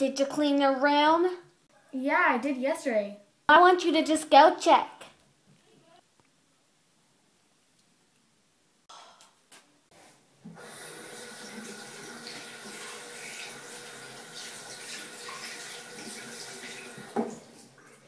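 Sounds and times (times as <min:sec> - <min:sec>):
faucet running into sink: 0:10.5 - 0:18.0.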